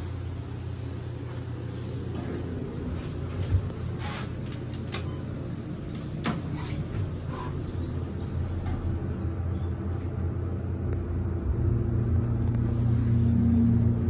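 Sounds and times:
hydraulic elevator pump humming: 0.0s - 10.9s.

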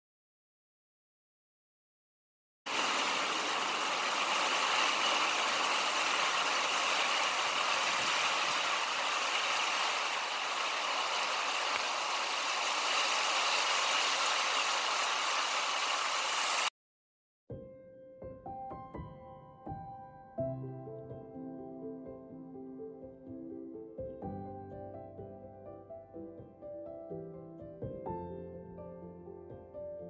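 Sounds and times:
steady outdoor rushing noise: 2.7s - 16.7s.

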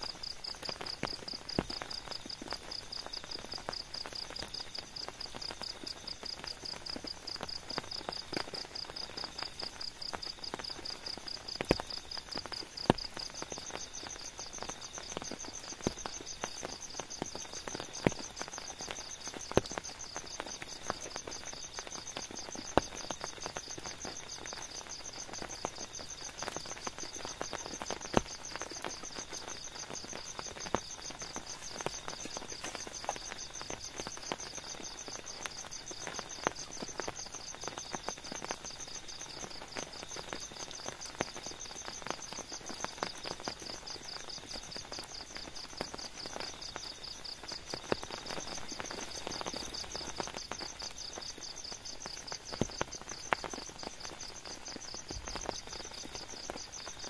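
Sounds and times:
night insects trilling: 0.0s - 57.0s
raindrops tapping on tent: 0.0s - 57.0s
higher-pitched insect trill: 12.8s - 57.0s.

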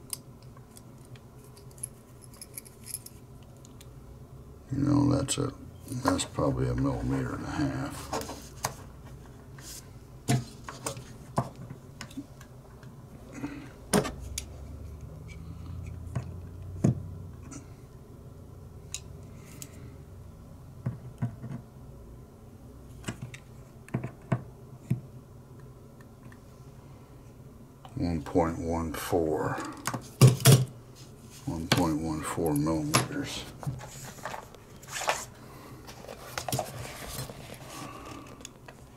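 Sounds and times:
low steady hum: 0.0s - 38.9s.

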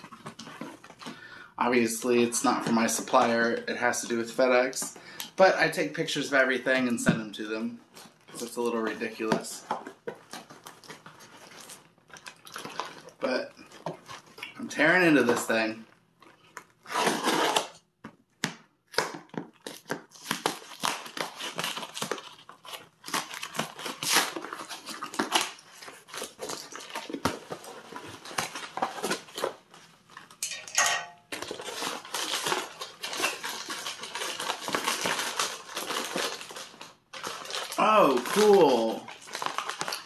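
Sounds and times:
cardboard envelope tearing: 8.1s - 17.8s, 18.9s - 30.4s, 31.3s - 40.0s.

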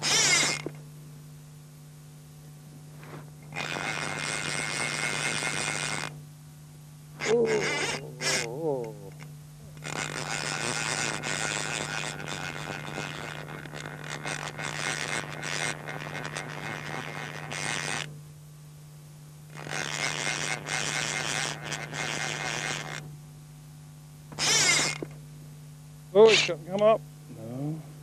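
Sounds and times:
fishing reel clicking: 0.0s - 0.7s, 3.5s - 6.2s, 7.2s - 8.5s, 9.1s - 18.1s, 19.5s - 23.0s, 24.4s - 25.0s
low mains hum: 0.0s - 28.0s.

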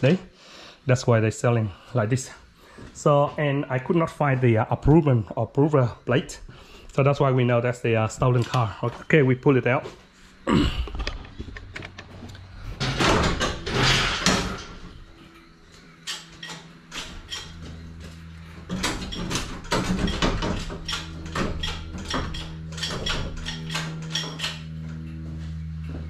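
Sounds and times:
motor humming: 10.1s - 26.0s
metallic clanks and knocks: 12.8s - 15.0s, 18.6s - 24.7s.

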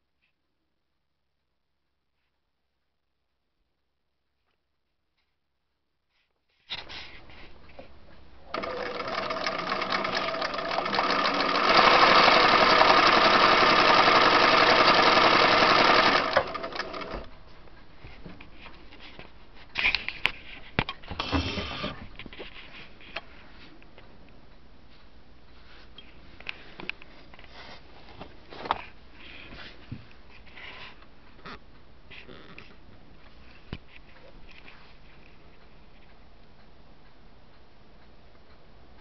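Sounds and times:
sewing machine stitching: 8.5s - 17.3s, 21.1s - 22.1s.

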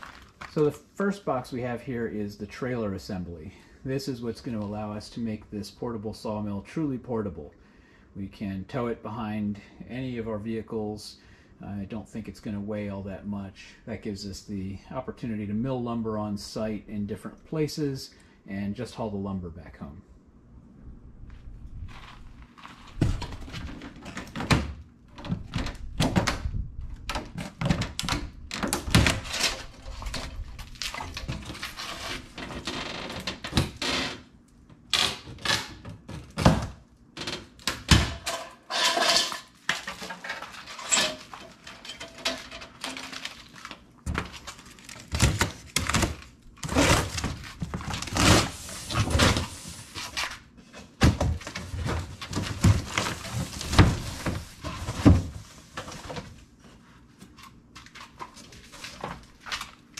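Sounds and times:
cardboard rustling and scraping: 21.4s - 24.5s, 28.9s - 32.7s, 38.6s - 59.9s.

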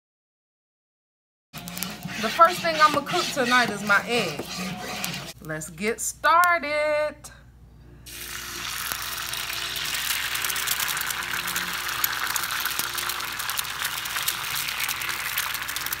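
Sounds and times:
egg sizzling on griddle: 8.1s - 16.0s.

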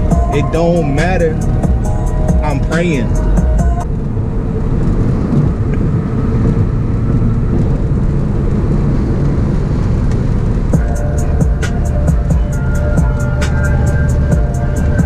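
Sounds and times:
music with a beat: 0.0s - 3.9s, 10.8s - 15.0s
car engine and road rumble: 0.0s - 15.0s.

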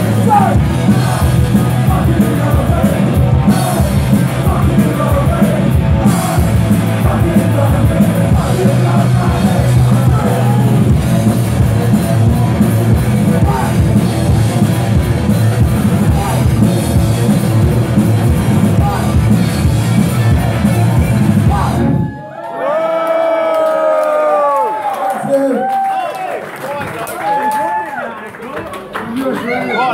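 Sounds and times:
shouted vocals: 0.0s - 11.0s
punk rock band playing: 0.0s - 22.2s.

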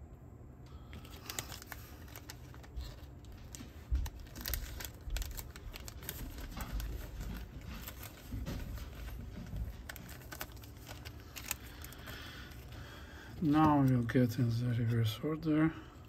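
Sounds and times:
plastic bag crinkling: 0.9s - 14.6s.

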